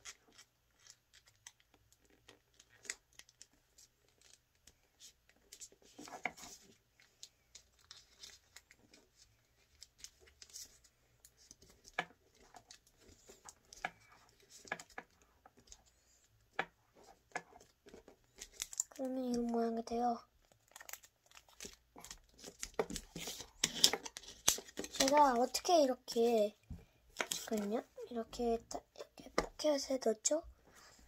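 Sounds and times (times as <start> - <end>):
paper rustling and crinkling: 0.0 - 16.3, 16.9 - 19.6, 20.4 - 25.8, 27.2 - 27.9
small paper crackles: 0.0 - 26.5, 27.2 - 28.1.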